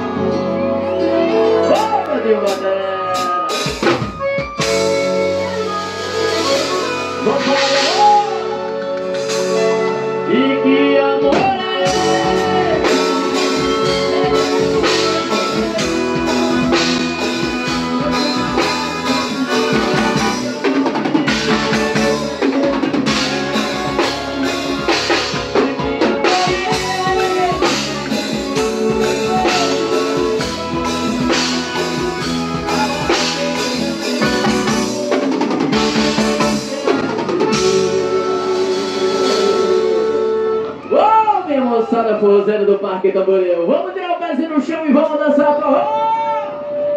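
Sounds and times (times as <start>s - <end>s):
live band playing: 0.0s - 46.9s
drum kit beat: 1.7s - 10.6s, 11.2s - 40.6s.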